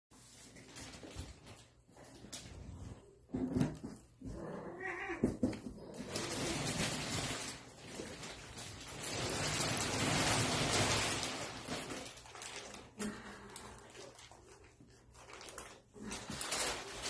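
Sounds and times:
loud rustling: 5.8s - 13.0s.

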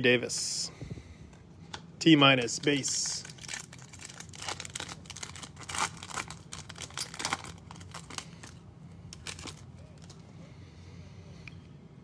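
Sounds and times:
wrapper tearing and crinkling: 2.8s - 10.2s.

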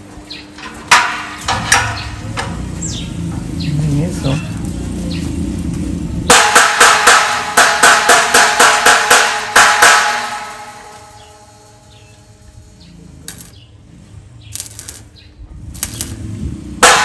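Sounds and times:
hammer striking metal: 6.3s - 11.3s, 13.3s - 13.6s, 14.6s - 15.1s.

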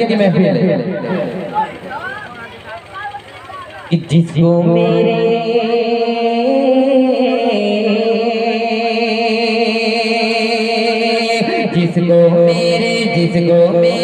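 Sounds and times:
man singing into a microphone: 3.9s - 14.0s.

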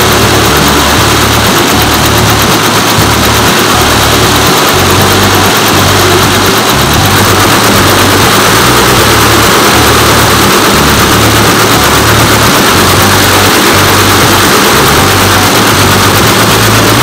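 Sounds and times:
embroidery machine running: 0.0s - 17.0s
low hum: 0.0s - 17.0s.

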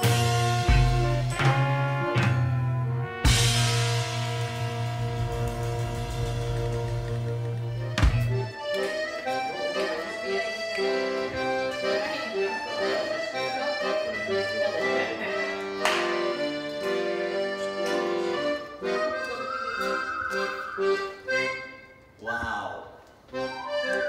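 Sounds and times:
sharp percussive hits: 0.0s - 9.0s
accordion music: 0.0s - 22.2s, 23.3s - 24.0s.

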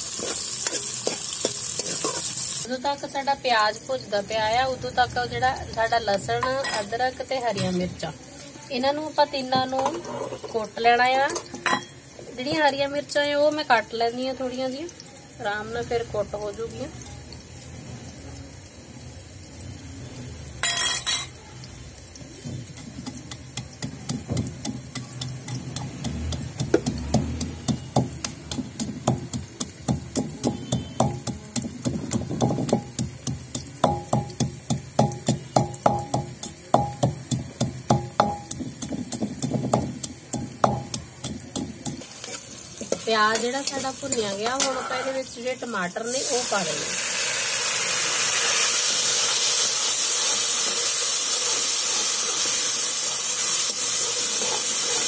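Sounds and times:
pestle pounding in a mortar: 22.8s - 42.1s.

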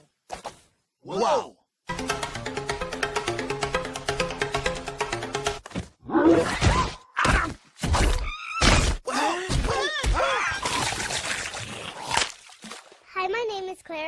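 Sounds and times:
cartoon thuds and crunches: 5.6s - 11.4s
water splash: 10.6s - 13.1s.

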